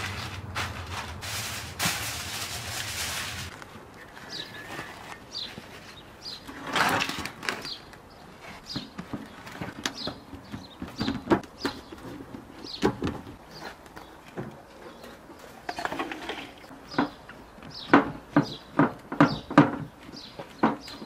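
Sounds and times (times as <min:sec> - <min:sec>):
plastic film rustling: 0:00.0 - 0:08.0
small birds chirping: 0:04.0 - 0:15.9, 0:16.6 - 0:21.0.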